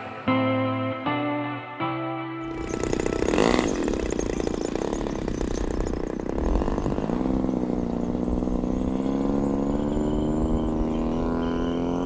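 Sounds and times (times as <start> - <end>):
model plane engine running: 2.5 - 12.0.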